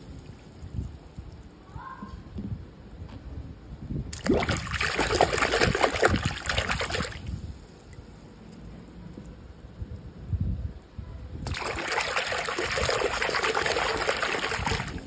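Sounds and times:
hand splashing in foamy water: 0:04.1 - 0:07.3, 0:11.4 - 0:15.0
water dripping and trickling: 0:11.4 - 0:15.0.

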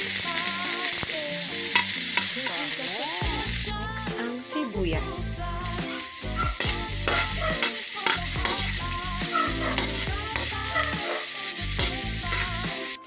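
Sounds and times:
metal spoon scraping wok: 0:00.0 - 0:03.7, 0:06.3 - 0:13.0
onion sizzling in hot oil: 0:00.0 - 0:13.0.

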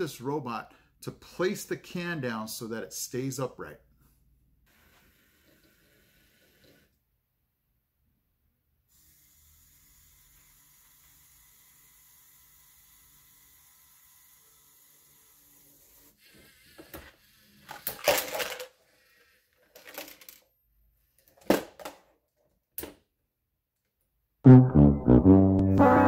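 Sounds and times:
hard plastic clattering: 0:17.7 - 0:18.7
contents rattling into container: 0:17.8 - 0:18.8
sad trombone sound effect: 0:24.5 - 0:26.0.

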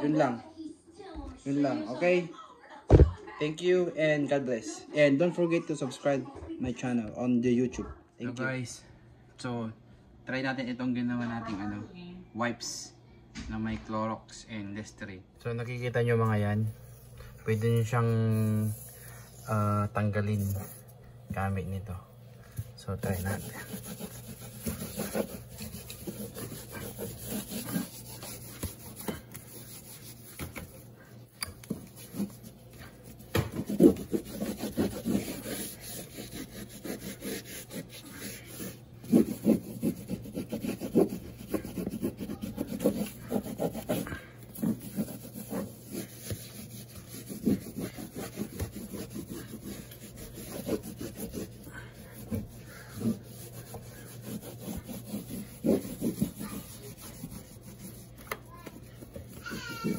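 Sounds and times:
cloth rubbing on wall: 0:22.8 - 0:31.0, 0:31.7 - 0:59.9.

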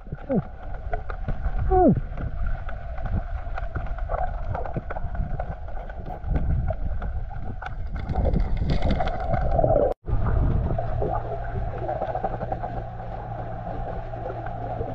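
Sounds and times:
underwater rumble and sloshing: 0:00.0 - 0:14.9
clicks and crackles: 0:00.1 - 0:10.0.

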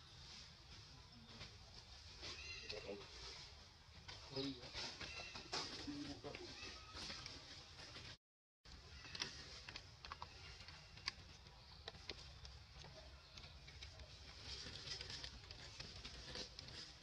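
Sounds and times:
dry leaves crackling: 0:08.8 - 0:17.0.

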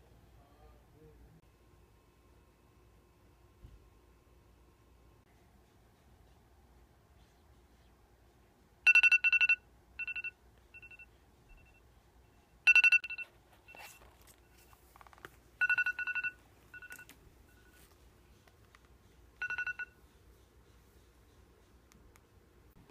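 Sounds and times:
rustling: 0:13.1 - 0:19.4.

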